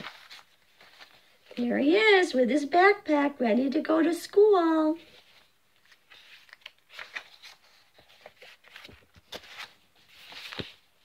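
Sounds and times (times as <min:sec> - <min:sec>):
book pages turning: 0:00.0 - 0:01.6, 0:05.0 - 0:11.0.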